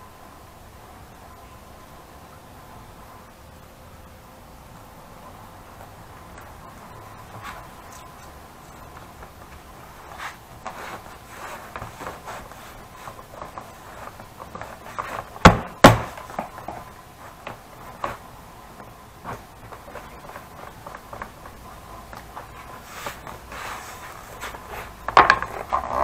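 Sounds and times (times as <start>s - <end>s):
leather rustling on wood: 6.2s - 26.0s.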